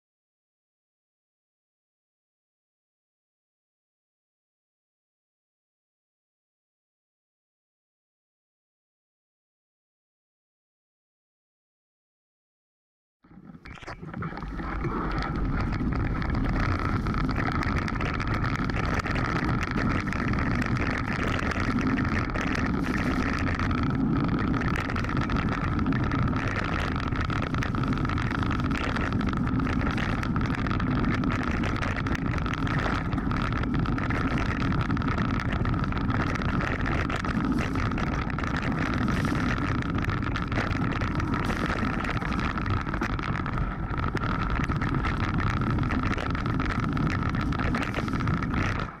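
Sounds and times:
tyres rumbling on stones: 13.5s - 49.0s.

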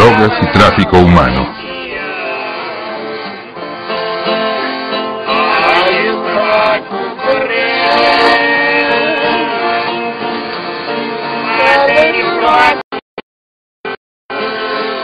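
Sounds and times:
man singing folk song: 0.0s - 2.9s, 5.2s - 10.0s
accordion: 0.0s - 12.8s, 14.3s - 15.0s
acoustic guitars: 1.5s - 12.8s.

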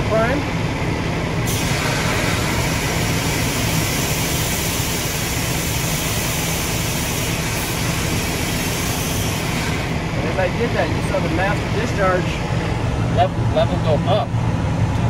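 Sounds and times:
engine low rumble: 0.0s - 15.0s
air primer hissing: 1.5s - 9.9s.

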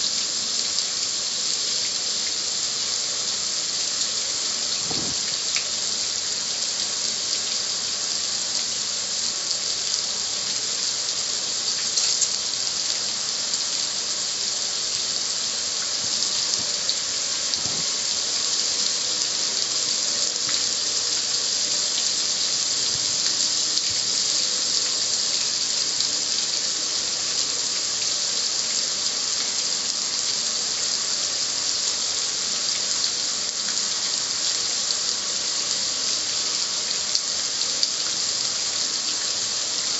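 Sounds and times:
water dripping: 0.1s - 7.8s, 9.5s - 29.7s
water jet spraying on metal lid: 4.4s - 5.8s, 15.6s - 25.5s.

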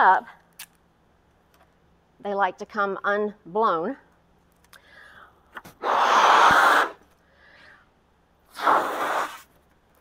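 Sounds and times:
person breathing in: 4.8s - 5.4s, 7.2s - 7.9s
person blowing into balloon: 5.7s - 7.0s, 8.5s - 9.5s.

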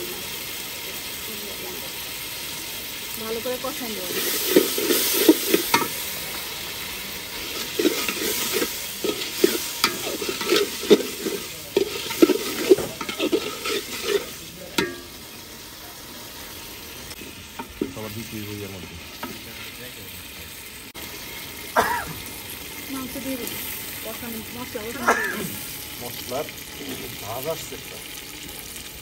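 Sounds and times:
food sizzling in oil: 0.0s - 29.0s
metal spatula scraping a pot: 3.8s - 6.0s, 7.3s - 15.2s, 17.2s - 18.1s.

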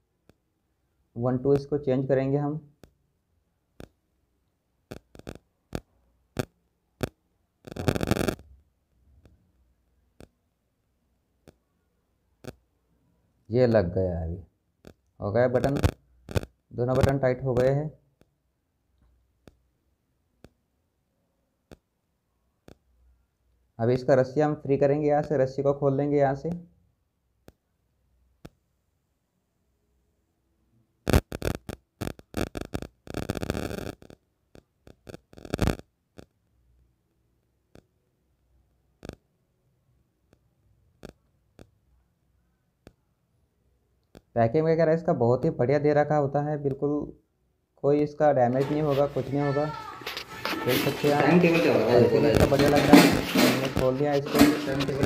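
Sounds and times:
small clicks: 4.9s - 8.6s, 14.8s - 18.4s, 31.1s - 36.4s
plastic wrap crinkling: 48.6s - 55.0s.

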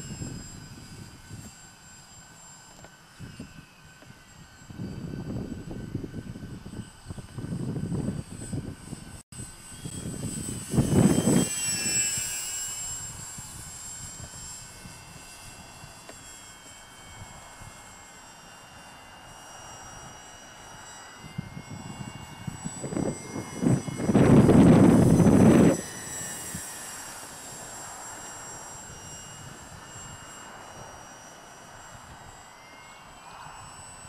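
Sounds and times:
model aircraft motor whining: 0.0s - 34.0s
low rumbling wind gusts: 21.3s - 26.7s.

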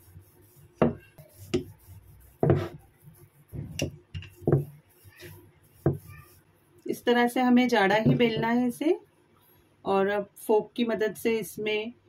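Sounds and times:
rolling pin rolling dough: 0.0s - 6.5s
wooden knock: 8.0s - 8.6s.

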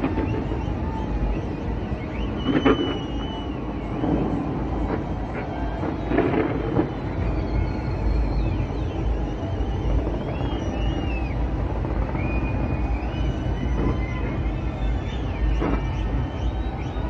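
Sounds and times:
distant fireworks rumble: 0.0s - 17.0s
sharp firework bangs: 4.0s - 7.2s.

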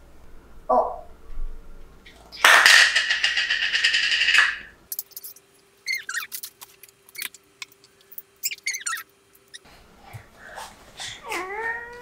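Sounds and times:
high chirping squeaks: 5.1s - 6.5s, 8.4s - 9.6s.

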